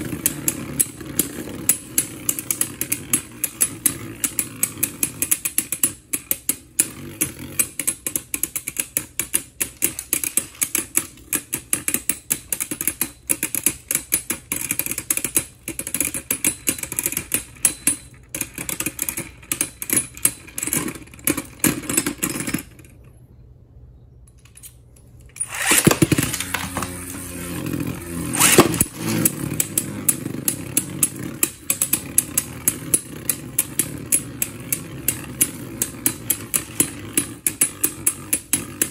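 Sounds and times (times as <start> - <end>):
spinning tops whirring hum: 0.0 - 23.6, 25.0 - 38.9
spinning tops clashing: 24.8 - 38.9.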